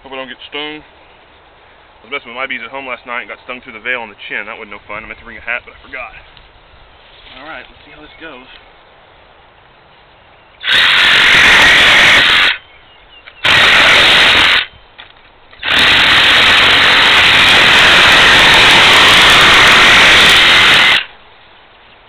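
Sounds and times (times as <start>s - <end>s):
reciprocating saw cutting metal: 10.6s - 12.6s, 13.4s - 14.7s, 15.6s - 21.1s.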